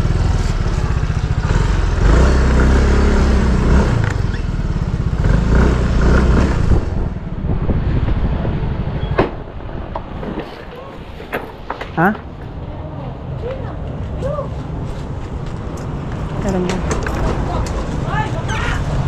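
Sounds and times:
motor scooter engine pulling away: 0.0s - 7.0s.

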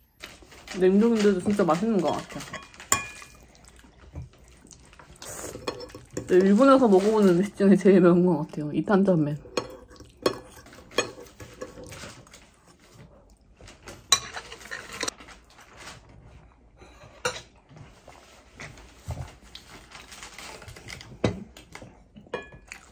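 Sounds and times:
eating and drinking sounds: 0.0s - 15.5s, 17.0s - 22.9s
chopsticks and tableware clinking: 1.1s - 3.4s, 5.5s - 7.6s, 9.4s - 12.1s, 14.0s - 15.1s.

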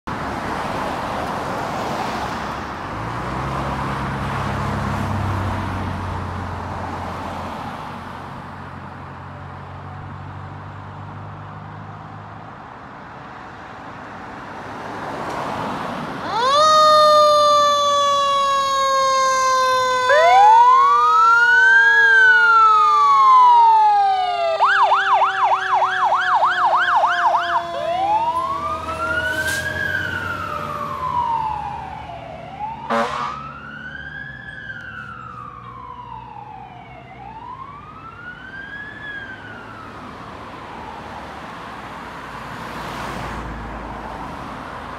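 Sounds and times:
fire engine rumble: 16.1s - 41.4s
electronic siren wailing and yelping: 16.2s - 39.3s.

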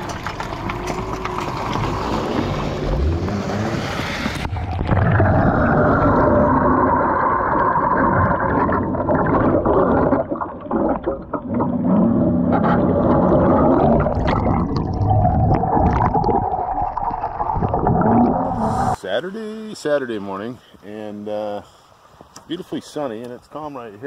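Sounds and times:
water churning and gurgling underwater: 0.0s - 19.0s.

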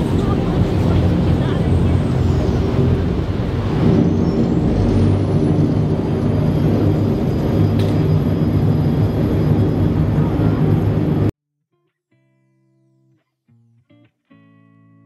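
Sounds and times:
churning water: 0.0s - 11.3s
high whine: 0.0s - 11.3s.

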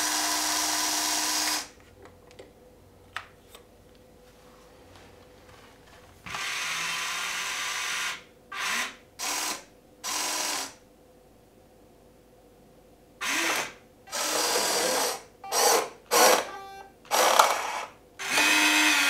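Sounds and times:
electric motors whirring: 13.2s - 19.0s.

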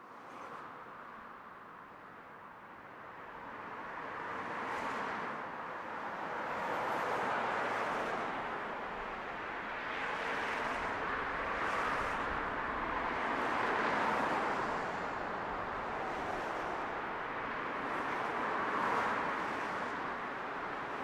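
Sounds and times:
distant road traffic: 6.2s - 21.0s.

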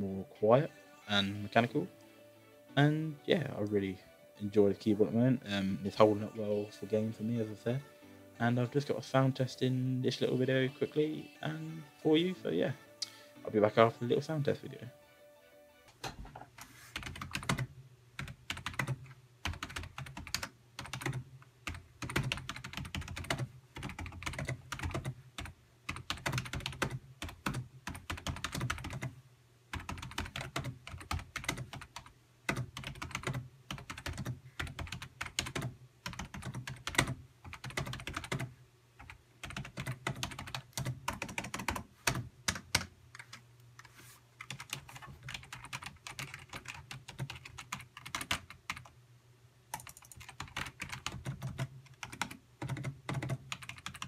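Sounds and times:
keyboard typing clacks: 17.0s - 29.1s, 29.8s - 38.5s, 39.4s - 42.9s, 44.4s - 48.9s, 49.8s - 54.0s.

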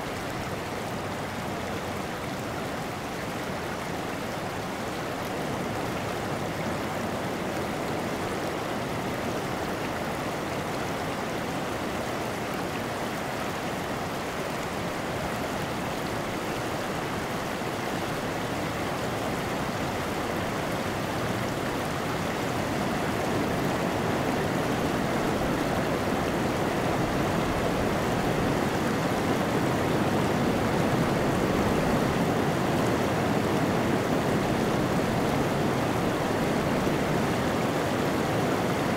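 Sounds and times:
creek rippling over cobbles: 0.0s - 38.9s.

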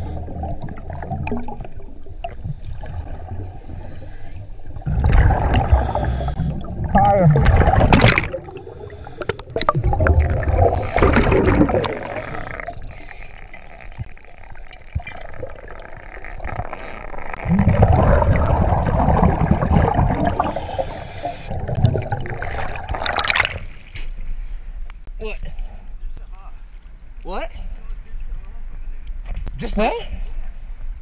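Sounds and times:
underwater exhaled air bubbling: 0.0s - 23.9s
soft water noise: 0.0s - 31.0s.

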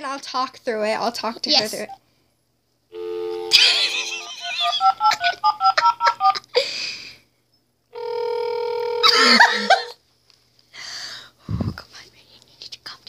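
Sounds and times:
phone dial tone: 3.0s - 3.5s, 8.0s - 9.1s.

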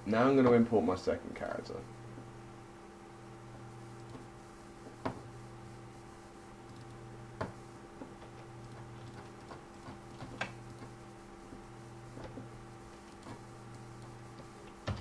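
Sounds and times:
low electrical hum: 0.0s - 15.0s
computer mouse clicking: 6.6s - 7.5s, 8.6s - 11.0s, 13.0s - 15.0s.

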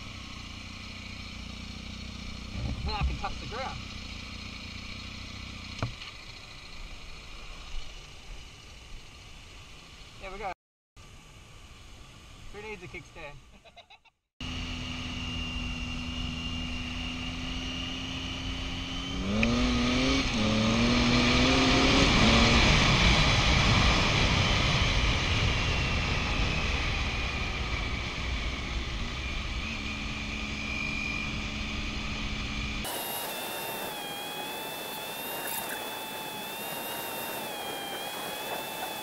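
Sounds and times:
motorcycle engine accelerating: 0.0s - 10.2s, 14.4s - 39.0s
wind rush on microphone: 32.9s - 39.0s.

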